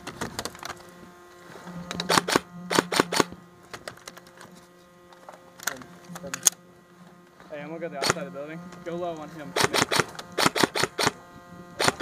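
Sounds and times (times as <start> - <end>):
airsoft guns firing: 2.1 - 3.4, 8.0 - 8.2, 9.6 - 11.2, 11.8 - 12.0.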